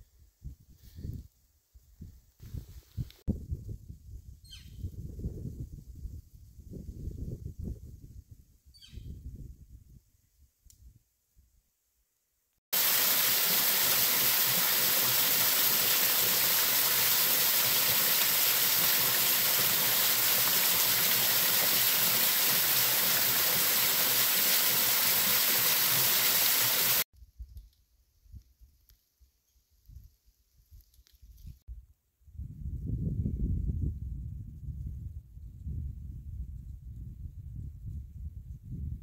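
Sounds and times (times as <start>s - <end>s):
waterfall rushing: 12.8s - 27.0s.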